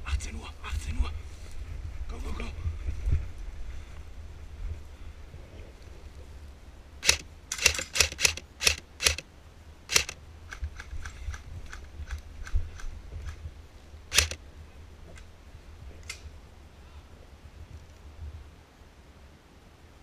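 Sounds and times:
airsoft rifle shots: 0:07.0 - 0:09.2, 0:09.9 - 0:10.2, 0:14.1 - 0:14.4.

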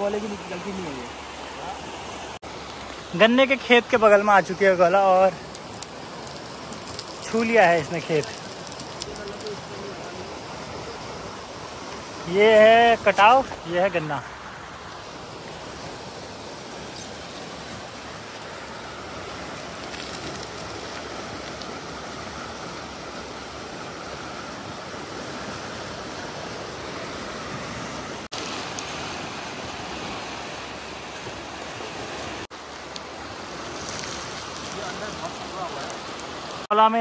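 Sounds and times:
river rushing: 0:00.0 - 0:37.0.

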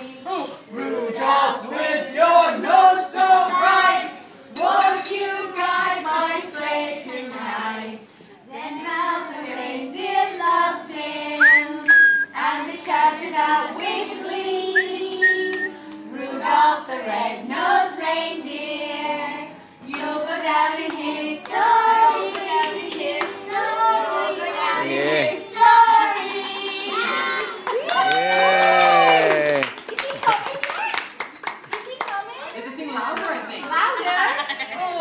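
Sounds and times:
group singing together: 0:00.0 - 0:27.9
short whistled notes: 0:11.4 - 0:12.4, 0:14.7 - 0:15.8
hand clapping: 0:27.4 - 0:32.6.

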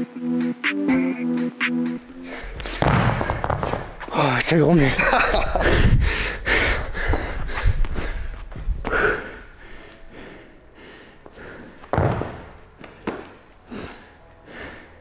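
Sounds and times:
thud: 0:02.8 - 0:03.9
person breathing hard and gasping: 0:05.5 - 0:11.9, 0:13.7 - 0:15.0.

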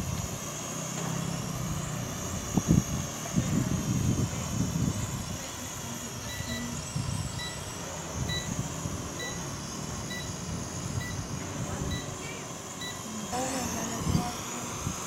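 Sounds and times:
toy drone rotors whining: 0:00.0 - 0:15.0
wind rumbling on microphone: 0:02.3 - 0:05.5.

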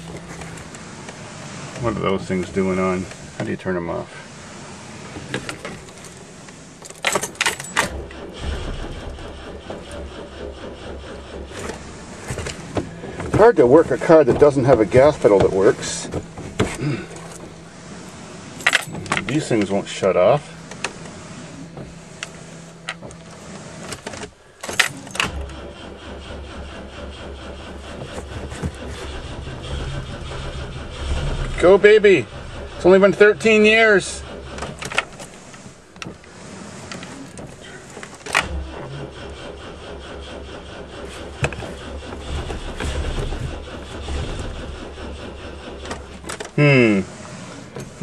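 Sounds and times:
car engine cranking by starter: 0:00.0 - 0:48.0
keys rattling in ignition: 0:05.2 - 0:48.0
keys jangling: 0:18.6 - 0:19.3.

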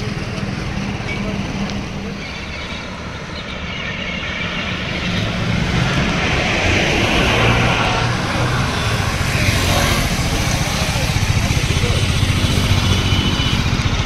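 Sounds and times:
motorcycle engine approaching: 0:05.2 - 0:14.0.

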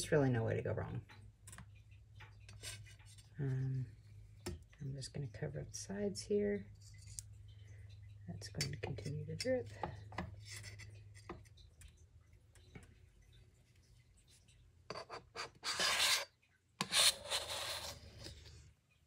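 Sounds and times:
rubbing scraping noise: 0:14.9 - 0:18.6.

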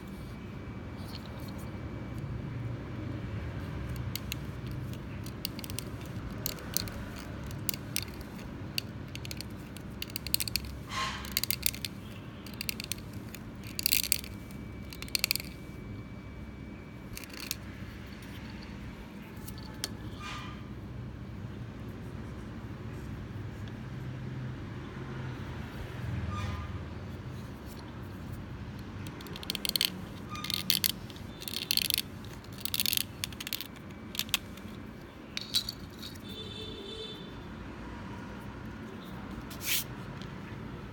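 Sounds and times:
knife scraping plastic: 0:04.0 - 0:15.7.

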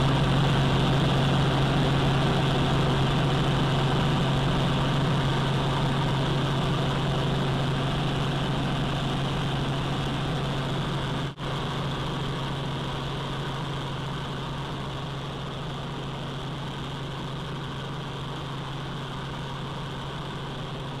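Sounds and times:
helicopter engine and rotor drone: 0:00.0 - 0:21.0.

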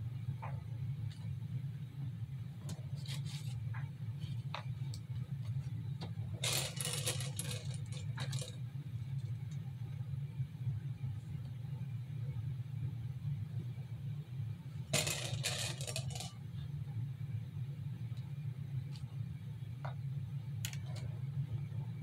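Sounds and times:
pearls and packaging rattling: 0:03.0 - 0:03.6, 0:06.4 - 0:08.6, 0:14.9 - 0:16.4.

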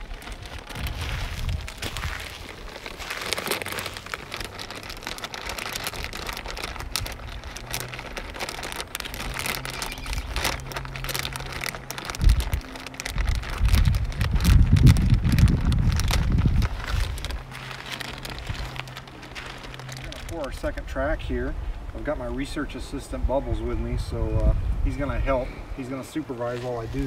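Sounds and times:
plastic bag crinkling: 0:00.0 - 0:21.2
low rumbling: 0:00.0 - 0:25.9.

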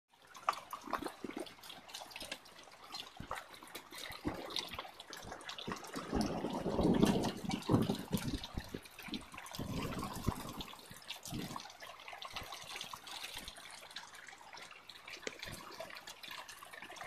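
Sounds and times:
rain: 0:00.1 - 0:17.0
hailstones ticking on patio: 0:04.8 - 0:11.8.

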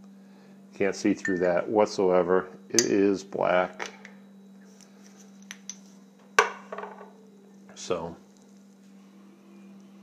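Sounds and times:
hard object knocking on table: 0:06.4 - 0:07.1.

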